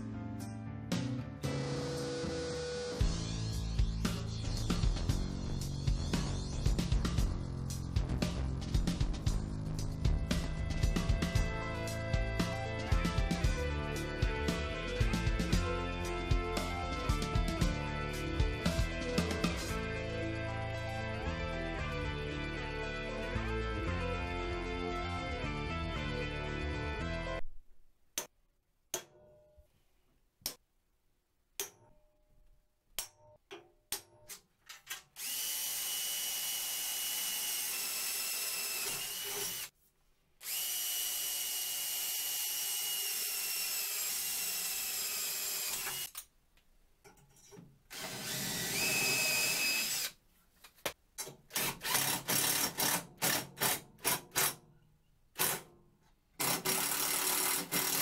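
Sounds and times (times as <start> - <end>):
cordless drill boring into metal: 35.2 - 39.7, 40.4 - 46.2, 47.9 - 50.2, 51.5 - 54.5, 56.4 - 58.0.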